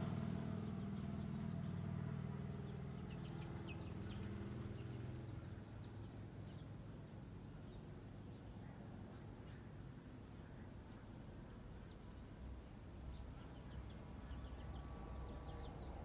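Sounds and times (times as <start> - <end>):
low engine rumble: 0.0 - 6.7
steady high-pitched whine: 0.0 - 16.0.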